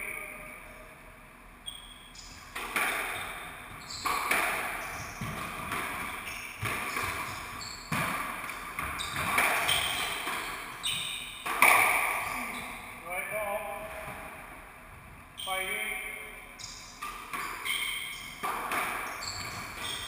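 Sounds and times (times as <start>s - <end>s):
squash ball hits echoing: 2.2s - 12.7s, 17.0s - 20.0s
shoes squeaking on wooden floor: 3.1s - 12.8s, 16.6s - 20.0s.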